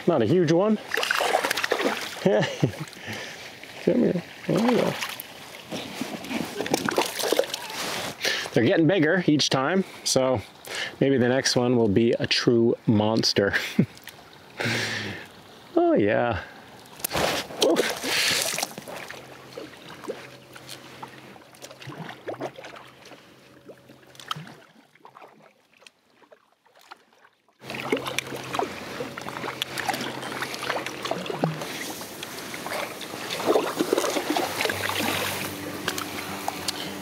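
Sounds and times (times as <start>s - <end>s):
water splashing and dripping: 0.7s - 8.1s, 16.8s - 36.8s
paddle strokes in water: 17.0s - 37.0s.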